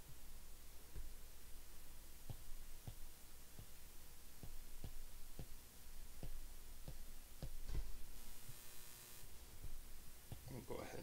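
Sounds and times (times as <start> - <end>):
stylus tapping on tablet: 2.2 - 3.8, 4.4 - 5.6, 6.2 - 8.0, 9.6 - 10.5.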